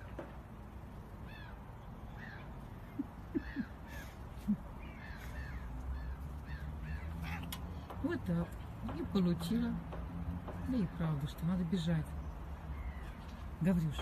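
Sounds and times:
crows cawing: 0:01.2 - 0:07.9.

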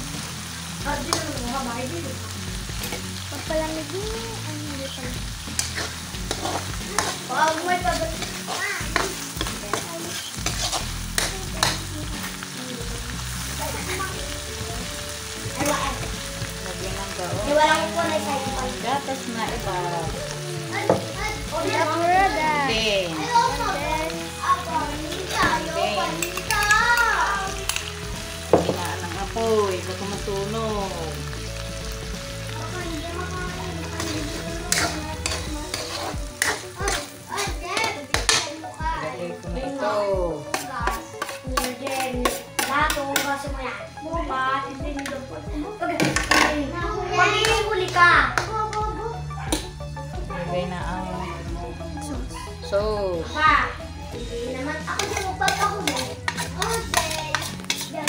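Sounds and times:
food sizzling in a pan: 0:00.0 - 0:58.0
utensil scraping a pan: 0:05.5 - 0:11.8, 0:33.9 - 0:38.4, 0:40.5 - 0:43.4, 0:54.5 - 0:58.0.

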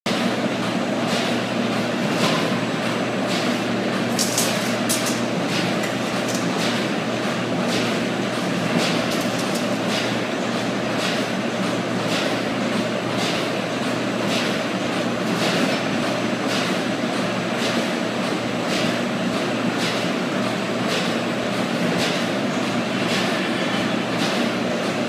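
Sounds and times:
machinery humming and rattling: 0:00.1 - 0:25.0
machine clacks: 0:02.1 - 0:14.6.

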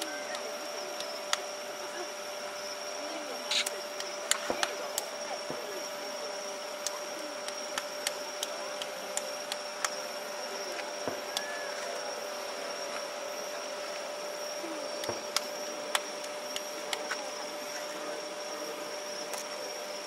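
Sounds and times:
steady hum: 0:00.0 - 0:20.0
distant fireworks pops and cracks: 0:03.5 - 0:05.6.

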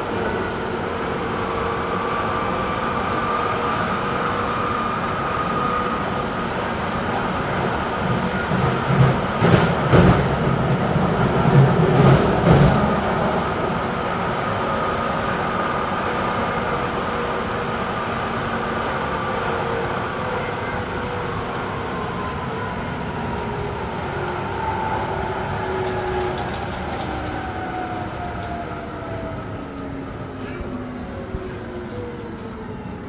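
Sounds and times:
light-rail car rolling noise: 0:00.0 - 0:33.0.

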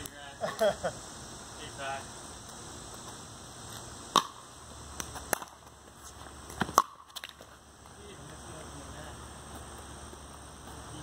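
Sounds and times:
paddles hitting plastic ball: 0:05.0 - 0:05.8, 0:06.5 - 0:08.0.

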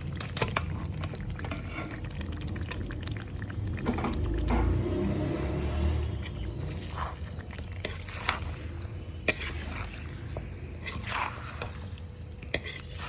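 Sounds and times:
spatula scraping a metal pan: 0:05.7 - 0:13.0.

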